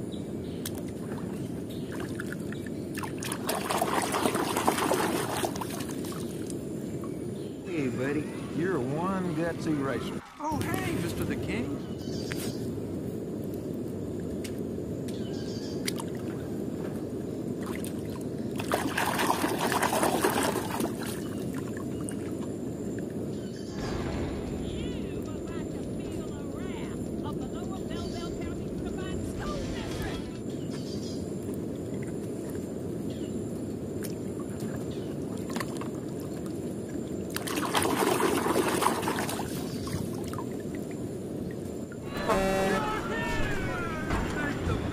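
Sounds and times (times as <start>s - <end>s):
water sloshing and trickling: 0.6s - 9.4s, 15.8s - 42.6s
steady low rumble: 6.4s - 15.3s, 21.8s - 35.4s.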